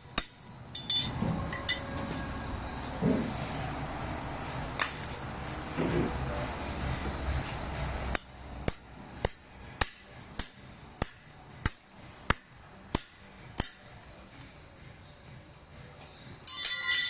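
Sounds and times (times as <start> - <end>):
hammer striking wood: 8.7 - 13.8.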